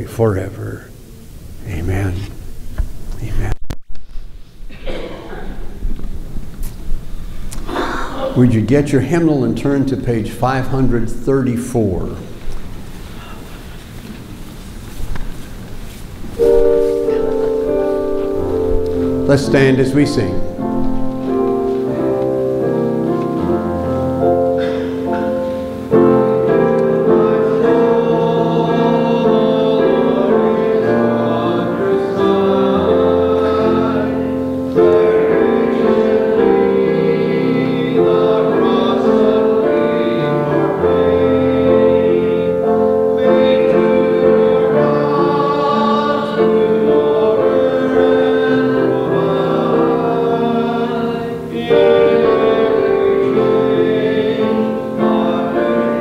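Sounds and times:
congregation singing a hymn: 7.4 - 56.0
instrumental accompaniment: 16.1 - 56.0.

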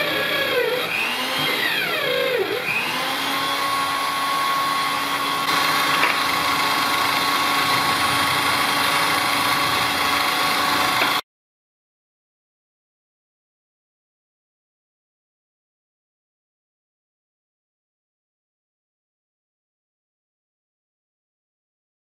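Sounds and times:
electric drill motor whine: 0.0 - 11.2.

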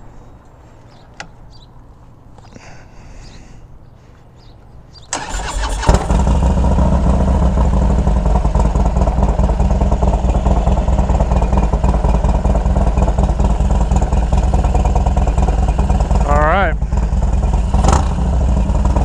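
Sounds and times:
starter motor cranking: 5.1 - 6.5
motorcycle engine idling: 5.2 - 19.0.

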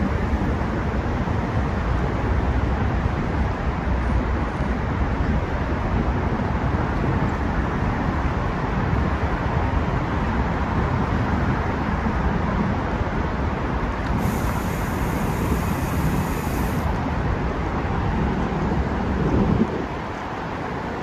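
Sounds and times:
vehicle travel rumble: 0.0 - 21.0
faint high hiss: 14.2 - 16.9.

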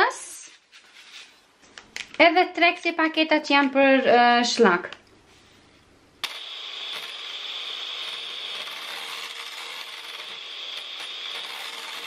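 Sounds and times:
electric hand mixer whirring: 6.2 - 12.0.

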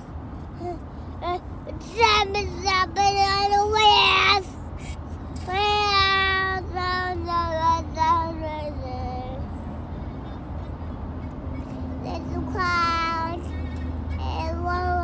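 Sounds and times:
car interior rumble: 0.0 - 15.0
toddler singing: 0.6 - 4.5, 5.4 - 9.4, 12.0 - 13.5, 14.2 - 15.0.

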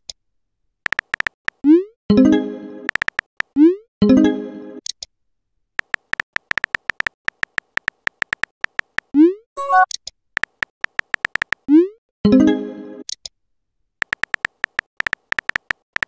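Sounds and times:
phone keyboard tap clicks: 0.9 - 1.4, 2.9 - 3.3, 5.8 - 9.1, 10.4 - 11.6, 14.0 - 16.0
brief tone: 9.6 - 9.9.

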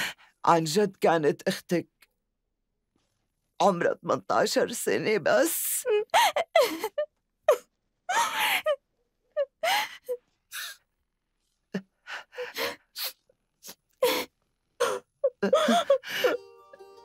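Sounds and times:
woman sobbing: 5.6 - 8.8, 9.4 - 10.8, 14.0 - 16.4.

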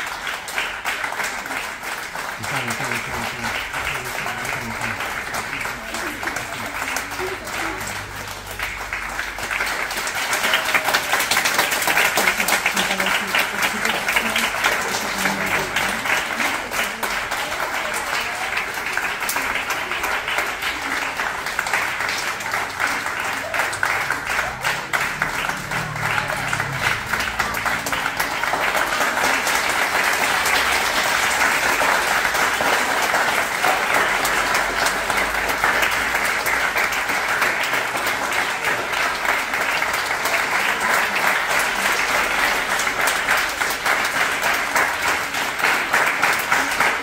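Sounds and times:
audience applauding: 0.0 - 47.0.

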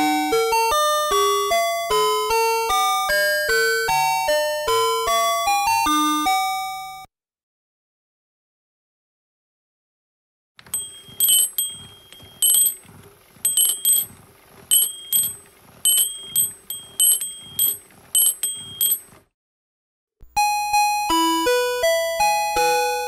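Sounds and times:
clock striking small metal bells: 10.6 - 19.2
motor hum: 10.6 - 19.3
soft mechanical knocks: 10.6 - 19.3
clock chime melody: 10.7 - 12.9, 13.5 - 19.1.

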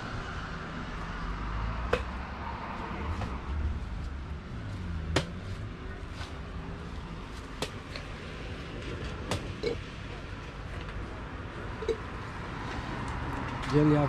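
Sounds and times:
sharp knocks: 1.9 - 2.2.

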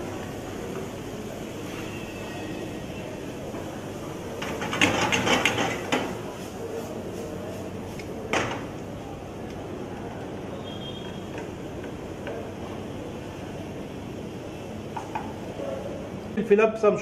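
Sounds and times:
steady low hiss: 0.0 - 4.9.

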